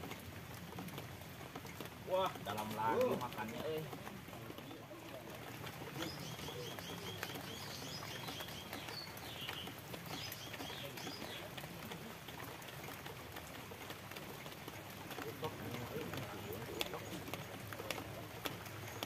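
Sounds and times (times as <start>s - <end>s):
rain falling on a pond: 0.0s - 19.0s
bird chirping: 6.0s - 11.5s.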